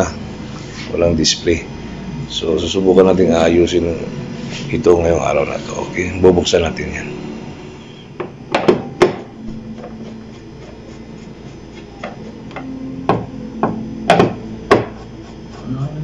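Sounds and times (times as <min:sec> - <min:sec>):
hard knocks and taps: 0:12.0 - 0:15.0.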